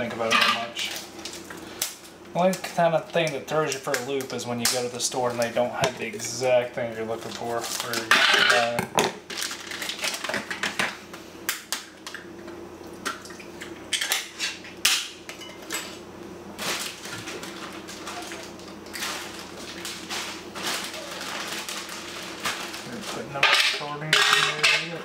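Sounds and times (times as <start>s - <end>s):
metal tin and utensils clinking: 23.4s - 25.0s.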